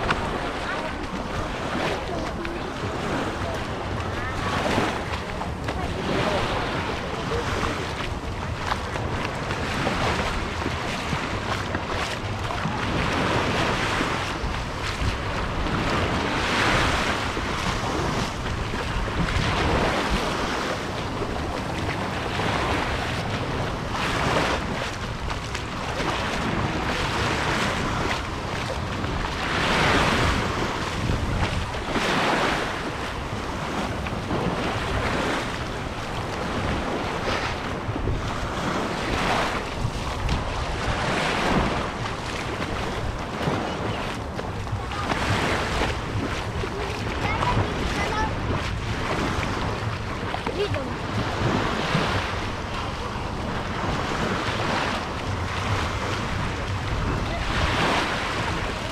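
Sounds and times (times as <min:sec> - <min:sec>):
sea waves breaking on beach: 0:00.0 - 0:58.9
wind on microphone: 0:00.0 - 0:58.9.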